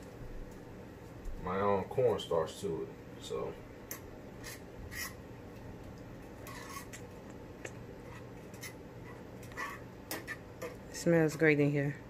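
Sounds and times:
steady low hum: 0.0 - 12.0
metal fork scraping in skillet: 4.4 - 5.2, 6.4 - 7.0, 8.0 - 10.8.

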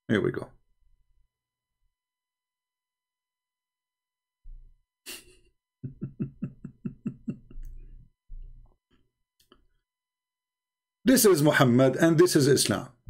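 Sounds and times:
man laughing: 5.1 - 8.0.

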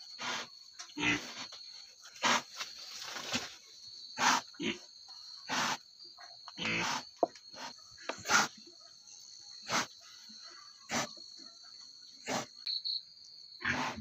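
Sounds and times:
pig grunting: 0.2 - 1.5, 13.6 - 14.0.

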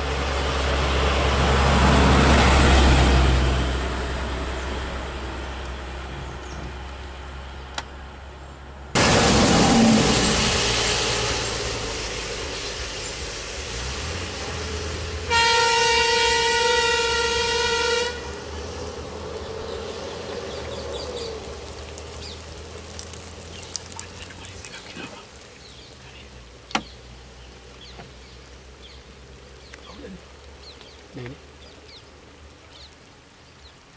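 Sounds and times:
vehicle horn long blast: 15.3 - 18.4.

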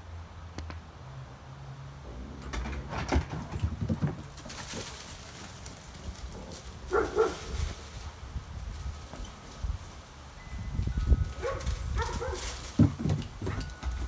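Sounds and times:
animals scuffling and knocking: 2.0 - 14.0
canine yips: 6.9 - 7.6, 11.4 - 12.6.

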